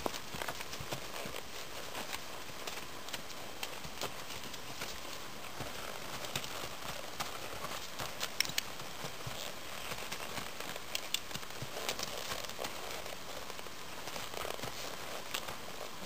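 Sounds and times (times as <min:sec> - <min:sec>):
horses stepping on packed dirt: 0:00.0 - 0:16.0
steady hiss: 0:00.0 - 0:16.0.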